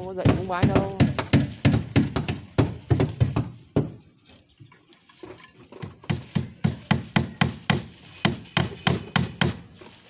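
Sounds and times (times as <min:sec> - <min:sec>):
sharp knocks on wood: 0:00.2 - 0:04.0.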